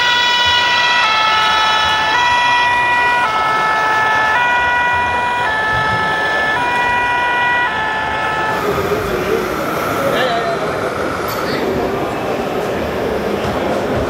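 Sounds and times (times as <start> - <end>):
two-tone fire engine siren: 0.0 - 12.7.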